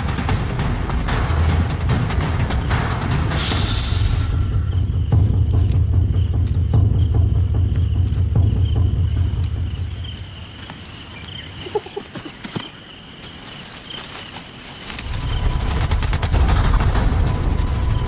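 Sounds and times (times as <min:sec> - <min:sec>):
crickets chirping: 0:00.0 - 0:18.0
low rumble: 0:15.0 - 0:18.0.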